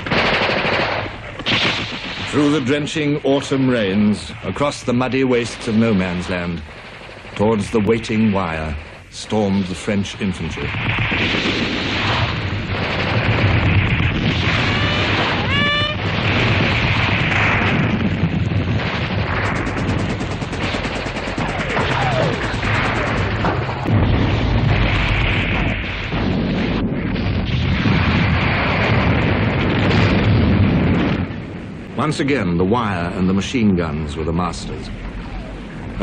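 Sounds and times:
gunfire: 0:00.0 - 0:04.0, 0:05.3 - 0:09.6, 0:10.4 - 0:31.6
artillery explosions: 0:00.0 - 0:36.0.

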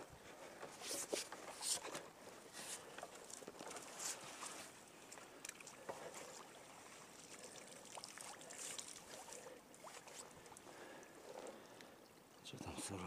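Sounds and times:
water splashing and dripping: 0:05.0 - 0:10.6.

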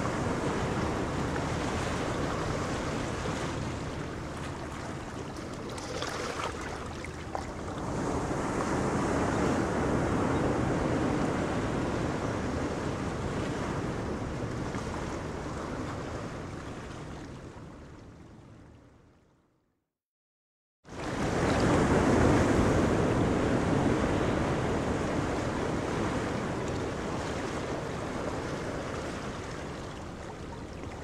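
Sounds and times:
wind buffeting microphone: 0:00.0 - 0:16.8
choppy sea water: 0:00.0 - 0:19.3, 0:20.9 - 0:31.0.

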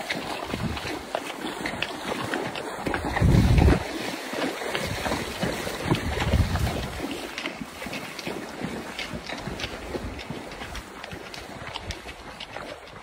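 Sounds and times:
horse hooves splashing through water: 0:00.0 - 0:13.0
wind buffeting microphone: 0:00.4 - 0:01.0, 0:02.8 - 0:04.0, 0:04.7 - 0:07.1.

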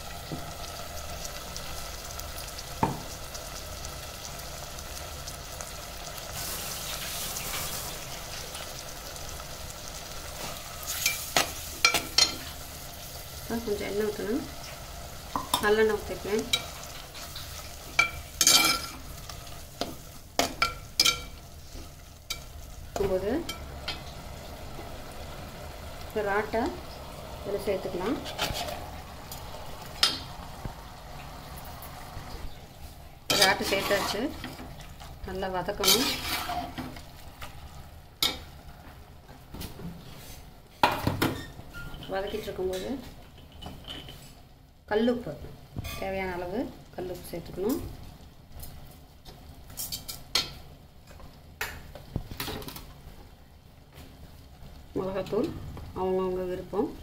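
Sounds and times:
faint sizzle of frying: 0:00.0 - 0:57.0
metal spatula scraping a pot: 0:28.1 - 0:28.9, 0:33.3 - 0:34.6, 0:35.8 - 0:37.0.

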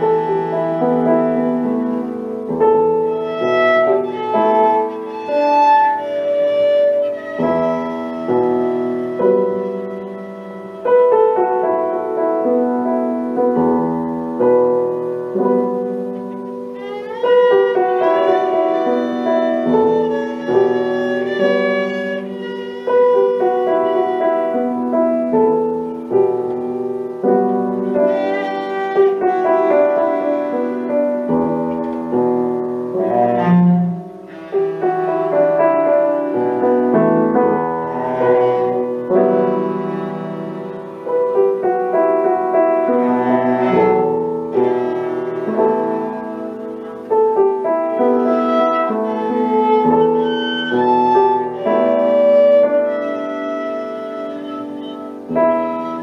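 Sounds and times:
cello bowed melody: 0:00.0 - 0:56.0
piano playing: 0:00.0 - 0:56.0.

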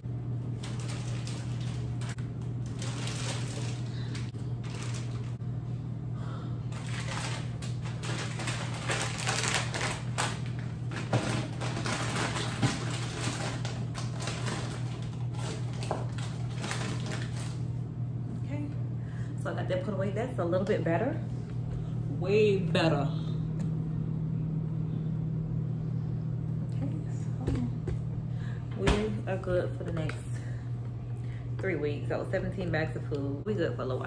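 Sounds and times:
steady low hum: 0:00.0 - 0:34.0
plastic bags rustling and crinkling: 0:00.5 - 0:05.4, 0:06.7 - 0:17.7.

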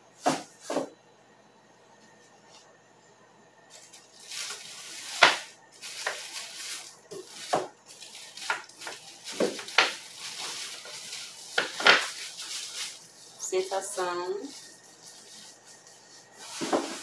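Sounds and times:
plastic rustling: 0:03.7 - 0:17.0.

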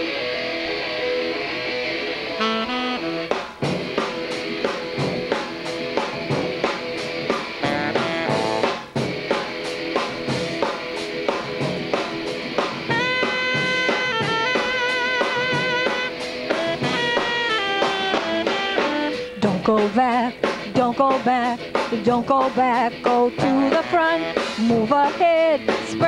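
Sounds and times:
rock band playing: 0:00.0 - 0:26.0
saxophone long held notes: 0:02.3 - 0:03.5, 0:07.6 - 0:08.8, 0:12.9 - 0:19.4.

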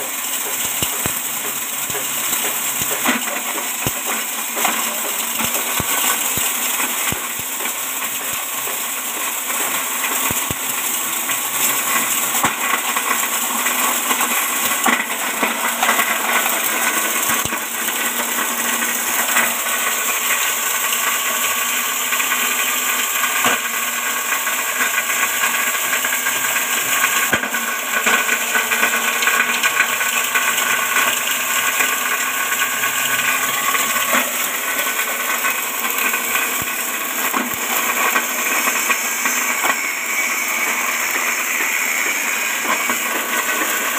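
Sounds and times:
grass chopper blades whirring: 0:00.0 - 0:23.0, 0:29.2 - 0:43.9.

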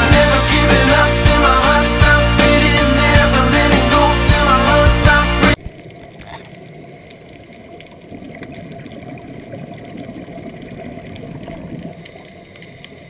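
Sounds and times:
underwater bubbles rumbling: 0:05.6 - 0:13.0.

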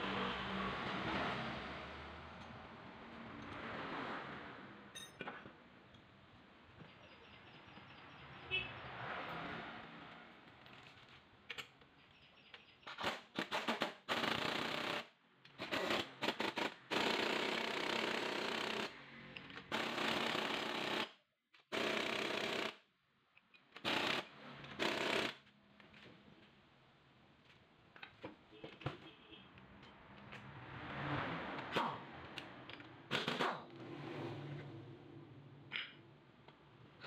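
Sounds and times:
pneumatic impact wrench hammering: 0:12.9 - 0:18.9, 0:19.6 - 0:22.8, 0:23.8 - 0:25.4, 0:33.1 - 0:33.7.

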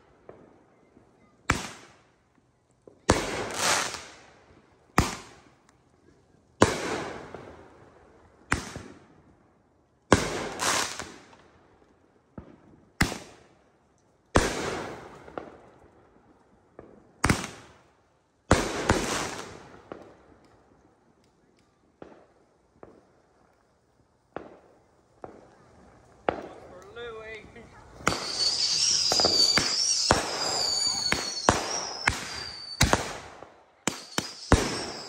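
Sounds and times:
faint fireworks pops: 0:00.0 - 0:07.6, 0:08.4 - 0:09.4, 0:10.1 - 0:17.8, 0:18.5 - 0:35.0
fireworks bangs with rumble: 0:03.0 - 0:04.0, 0:06.6 - 0:07.5, 0:24.3 - 0:26.8, 0:27.4 - 0:35.0.

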